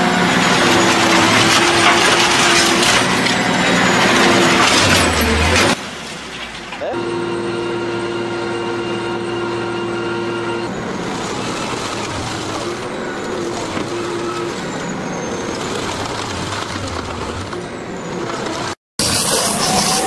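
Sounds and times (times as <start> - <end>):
heavy machinery rumbling: 0.0 - 20.0.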